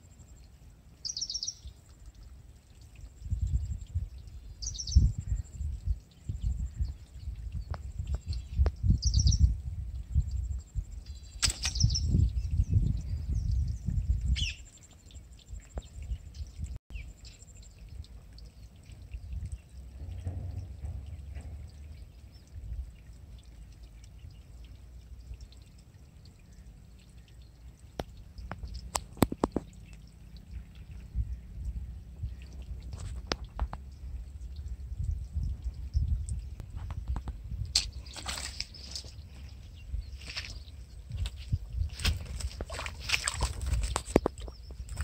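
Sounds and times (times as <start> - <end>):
wind rumble on microphone: 1.2 - 45.0
light clicks and rustles: 36.3 - 39.6, 40.2 - 45.0.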